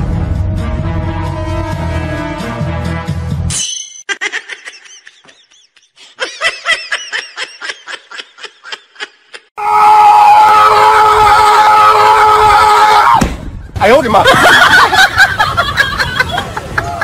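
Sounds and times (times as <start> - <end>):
high-pitched giggling: 4.1 - 9.5.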